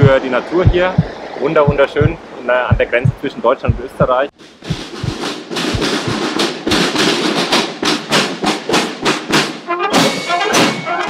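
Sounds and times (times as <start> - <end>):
music with fast percussive beat: 4.5 - 10.9.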